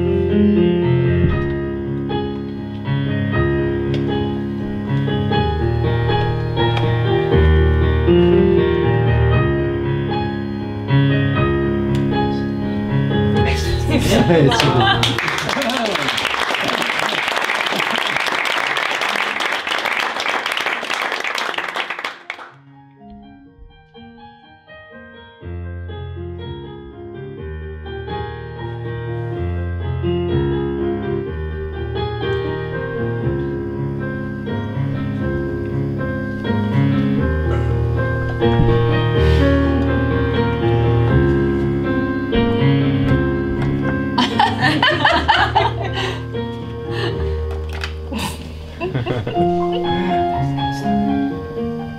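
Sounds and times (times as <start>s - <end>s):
solo piano music: 0.0s - 15.2s, 22.6s - 51.9s
audience noise: 14.2s - 22.6s
applause: 14.5s - 22.6s.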